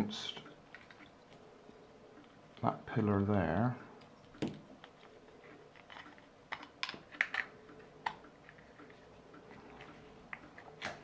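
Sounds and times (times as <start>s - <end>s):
plastic parts clicking: 5.7s - 9.0s.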